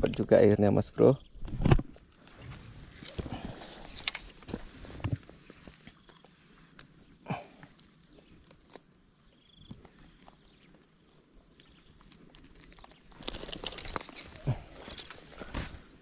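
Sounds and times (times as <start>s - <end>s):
crickets chirring: 0.0s - 16.0s
footsteps in dry grass: 2.3s - 7.0s.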